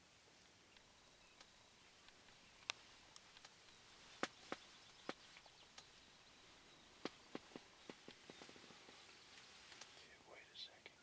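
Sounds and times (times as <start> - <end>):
faint sharp clicks: 0.7 - 6.0, 7.0 - 10.1.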